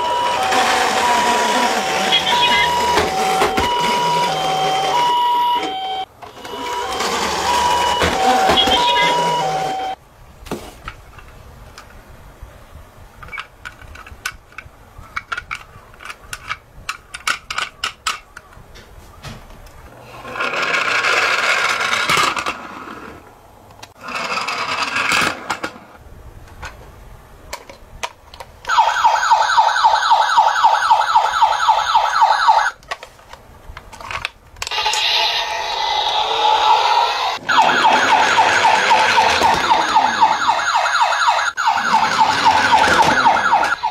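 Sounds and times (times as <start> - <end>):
toy siren warbling: 0.0 - 10.0, 28.7 - 32.8, 34.7 - 43.9
toy cars clicking and knocking: 13.2 - 18.6, 19.6 - 22.7, 32.6 - 36.9, 37.6 - 40.3.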